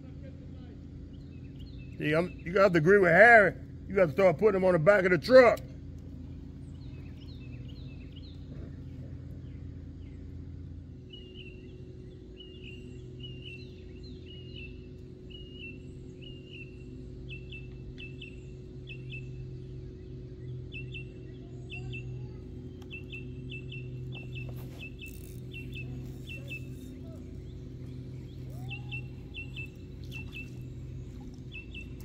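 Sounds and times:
steady low hum: 0.0s - 32.0s
bird chirping: 11.1s - 32.0s.

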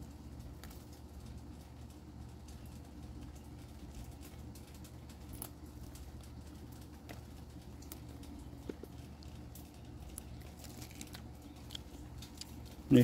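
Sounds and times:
steady low hum: 0.0s - 13.0s
leafy greens snapping and rustling: 2.6s - 13.0s.

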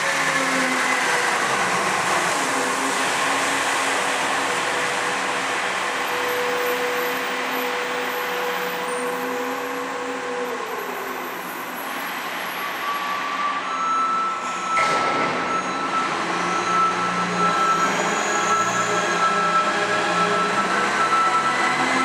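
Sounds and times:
high whine: 0.8s - 21.8s.

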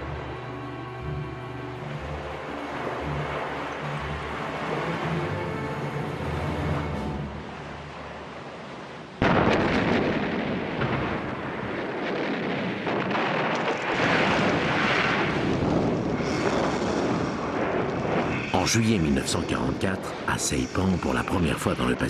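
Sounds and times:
loud explosion blast: 9.2s - 18.6s.

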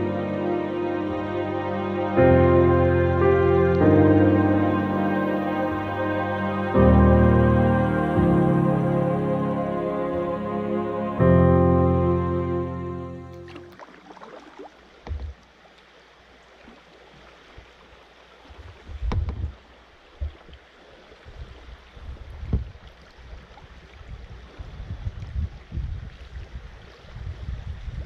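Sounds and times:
water splashing and lapping: 13.3s - 28.0s
wind buffeting microphone: 18.7s - 19.6s, 21.2s - 28.0s.

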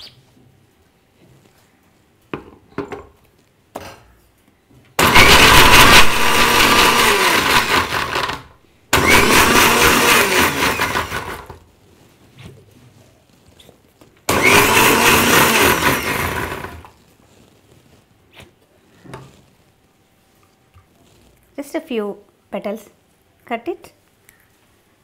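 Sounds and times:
mixer grinder blending: 5.0s - 11.6s, 14.3s - 17.0s.

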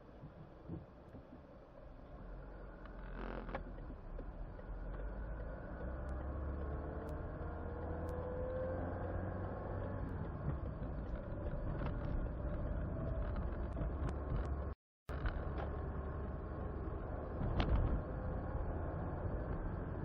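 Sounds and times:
car engine and road rumble: 0.0s - 20.0s
light ticks: 2.7s - 15.8s.

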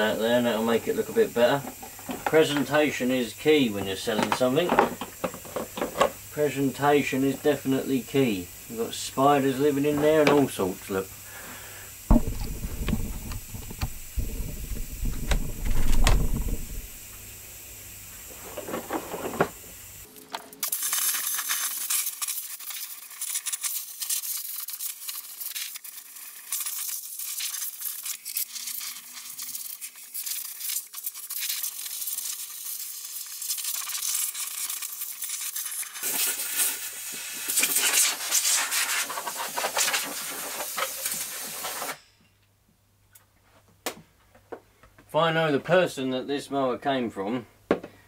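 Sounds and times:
air jet hissing: 0.0s - 17.2s
debris crackling and rattling: 12.1s - 17.1s.

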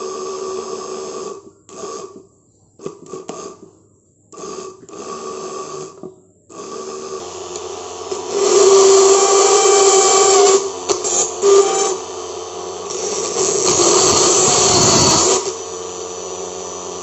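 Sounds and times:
starter motor whining: 12.8s - 17.0s.

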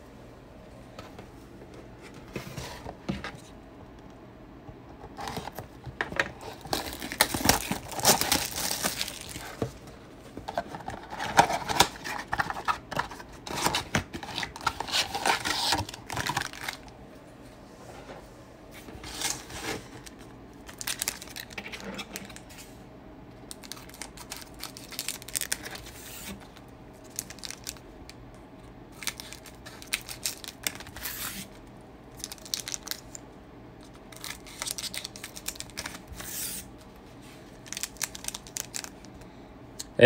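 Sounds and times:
foil wrappers crinkling: 6.4s - 16.9s, 19.0s - 22.6s, 23.5s - 27.8s, 28.9s - 33.2s, 33.8s - 36.7s, 37.5s - 39.2s.

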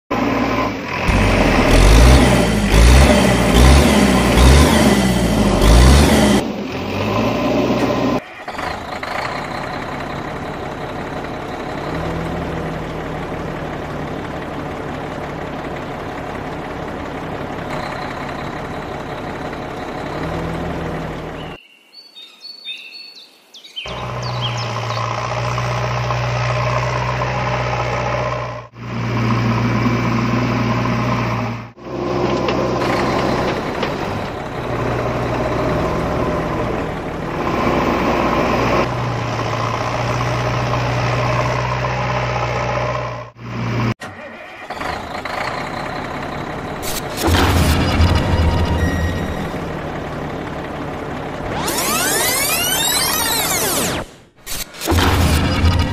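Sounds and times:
truck engine running: 0.1s - 21.6s, 23.9s - 55.9s.

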